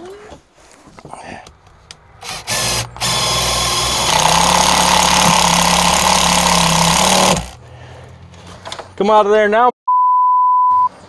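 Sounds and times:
power drill driving screw: 0:02.2 - 0:07.6.

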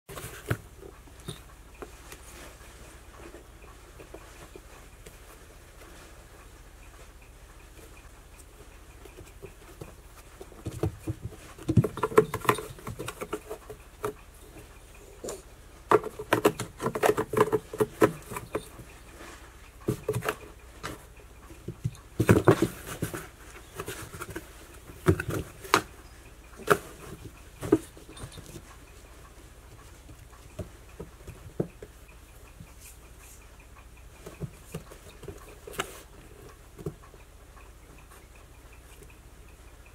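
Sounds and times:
cat scratching cardboard box: 0:15.9 - 0:21.0.

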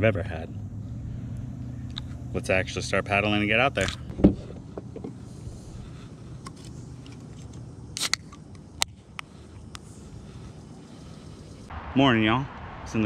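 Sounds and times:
low rumble: 0:11.2 - 0:13.0.

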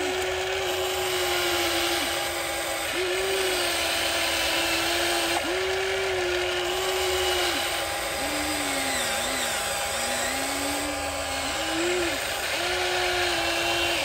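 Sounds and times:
small electric motors whining: 0:00.0 - 0:14.0.

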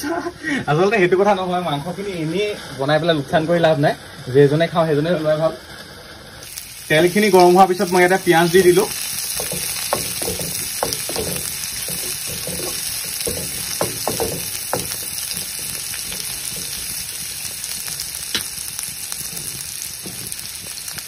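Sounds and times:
onions sizzling in hot oil: 0:00.7 - 0:21.0
spatula scraping and stirring: 0:07.2 - 0:18.2, 0:18.8 - 0:21.0.

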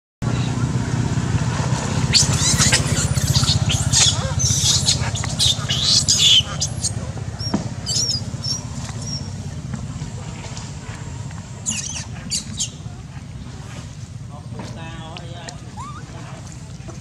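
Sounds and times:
steady low hum: 0:00.2 - 0:17.0
monkeys squealing: 0:01.9 - 0:09.4, 0:11.6 - 0:12.9, 0:15.6 - 0:16.4.

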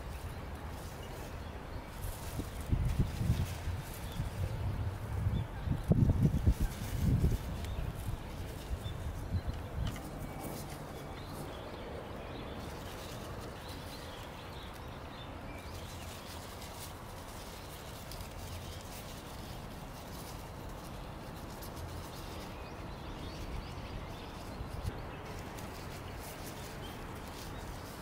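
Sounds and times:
dry leaves crinkling: 0:00.0 - 0:28.0.

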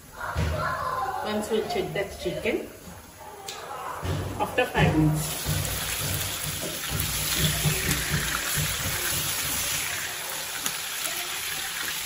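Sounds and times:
chicken sizzling in a pan: 0:05.2 - 0:12.0.

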